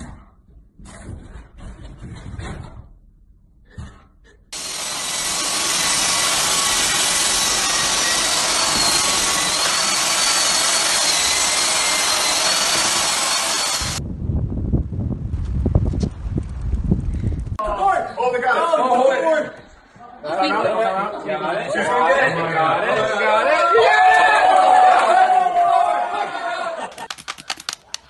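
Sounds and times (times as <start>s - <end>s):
stick vacuum cleaner whining: 4.6s - 14.0s.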